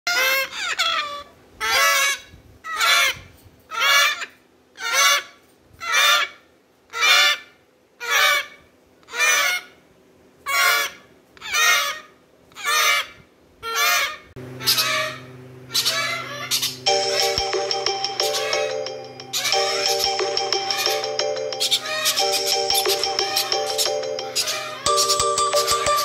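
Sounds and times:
parrots honking calls: 0.1 - 9.7, 10.5 - 26.0
background music: 16.9 - 26.0.

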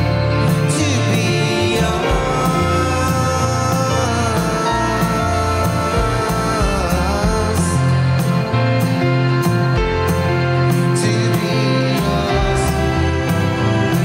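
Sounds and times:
live rock band playing: 0.0 - 14.0
person singing: 0.0 - 14.0.

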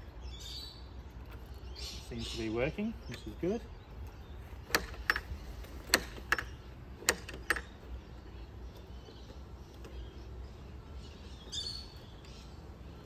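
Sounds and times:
faint outdoor background: 0.0 - 13.0
gate latch clicking: 4.6 - 7.9.

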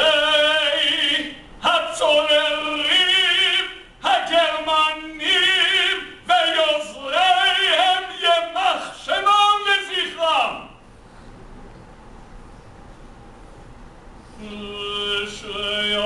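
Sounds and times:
man singing a slow chant: 0.0 - 10.8, 14.4 - 16.0.

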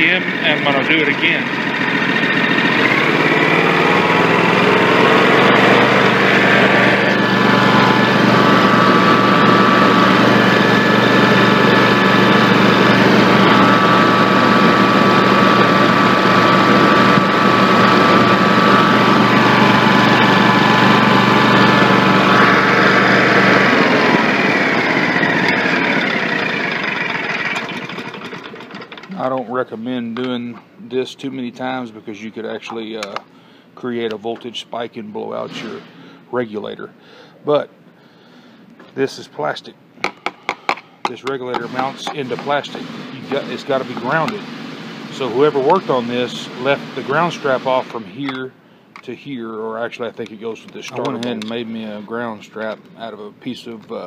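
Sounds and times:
engine revving: 0.0 - 29.0, 41.6 - 48.0.

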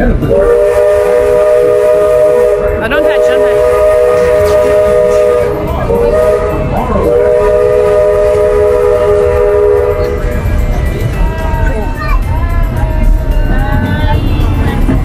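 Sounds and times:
steam locomotive whistle: 0.2 - 10.4.

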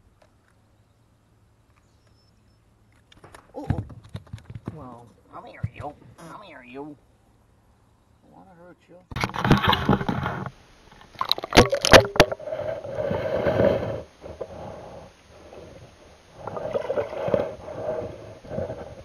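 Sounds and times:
muffled underwater water sloshing: 9.1 - 19.0.

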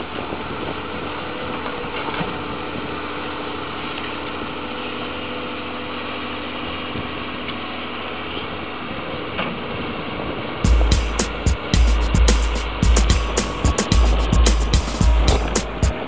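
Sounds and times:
excavator diesel engine running: 10.6 - 16.0.

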